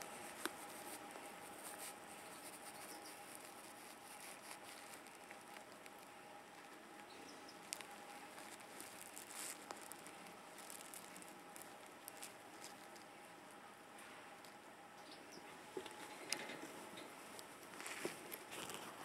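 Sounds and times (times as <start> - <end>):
baby hedgehogs peeping: 0.0 - 13.8, 14.4 - 19.0
soft shuffling in bedding: 7.7 - 13.1, 16.7 - 19.0.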